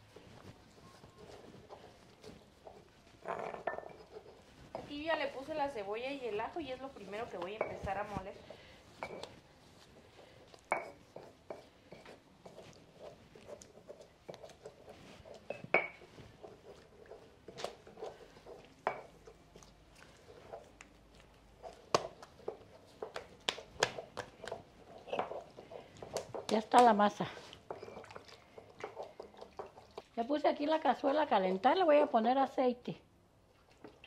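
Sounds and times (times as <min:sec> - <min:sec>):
stone pestle grinding in mortar: 0:01.1 - 0:05.0, 0:21.4 - 0:26.9, 0:27.6 - 0:30.0.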